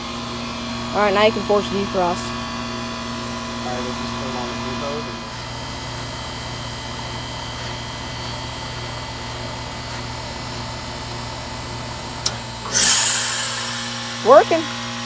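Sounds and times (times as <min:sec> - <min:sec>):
heat pump compressor humming: 0:00.0 - 0:15.0.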